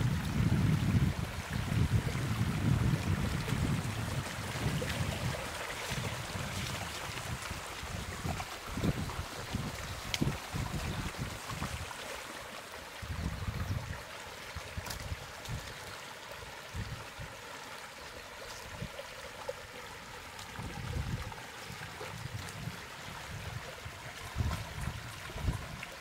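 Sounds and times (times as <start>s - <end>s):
floodwater running and trickling: 0.0s - 26.0s
low rumbling water surges: 0.0s - 26.0s.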